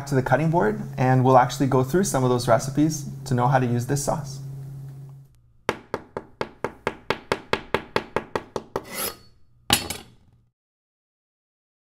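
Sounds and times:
sharp knocks on wood: 0:05.7 - 0:08.8.

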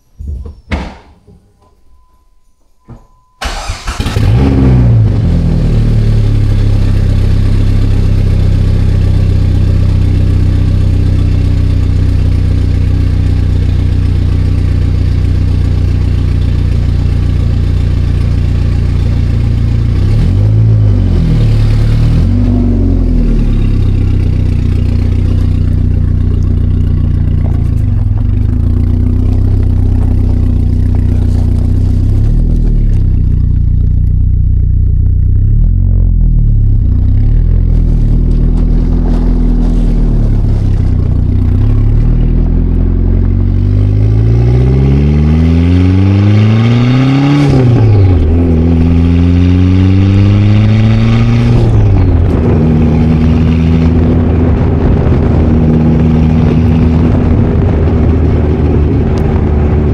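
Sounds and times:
car engine idling: 0:01.4 - 0:44.6
engine revving: 0:03.4 - 0:59.9.

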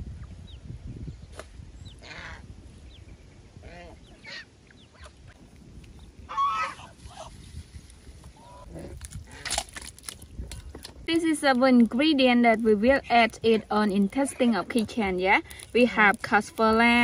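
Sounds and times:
geese honking: 0:06.2 - 0:07.3.

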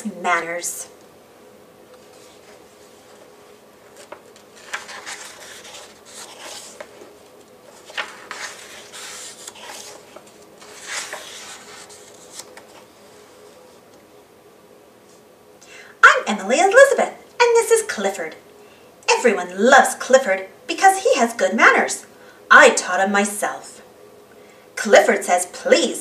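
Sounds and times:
book pages turning: 0:01.9 - 0:14.0.

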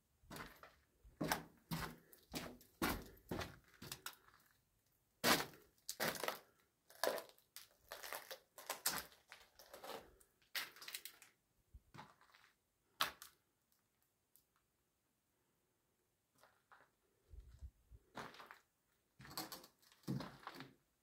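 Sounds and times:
footsteps crunching over debris: 0:18.1 - 0:18.6.

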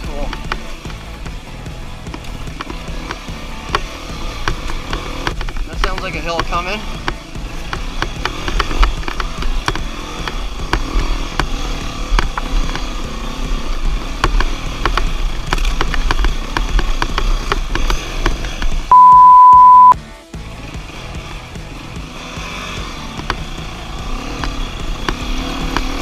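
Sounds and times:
dirt bike engine: 0:00.0 - 0:26.0
knocks and clatter: 0:00.2 - 0:18.9
loud steady beep: 0:18.9 - 0:20.0.

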